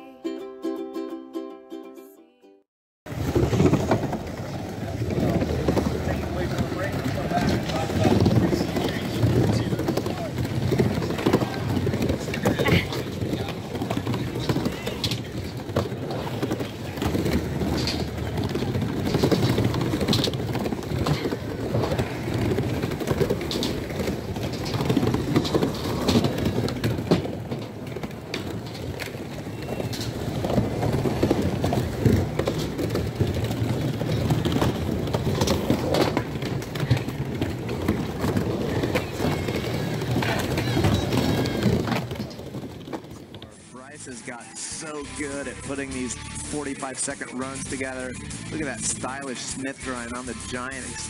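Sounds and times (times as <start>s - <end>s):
skateboard wheels rolling on wood: 3.0s - 51.0s
skateboard knocks: 3.1s - 43.5s
crowd chattering: 3.1s - 51.0s.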